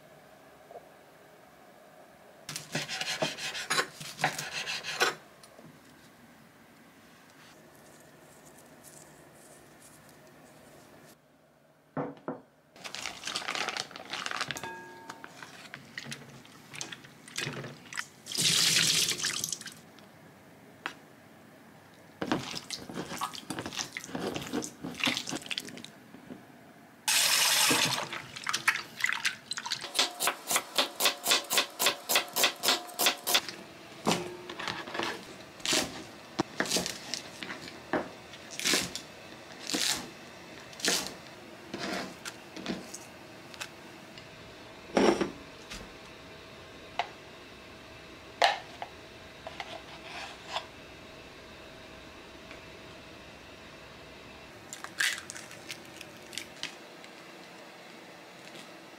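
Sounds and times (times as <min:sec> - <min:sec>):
knife chopping on cutting board: 0:02.5 - 0:05.2.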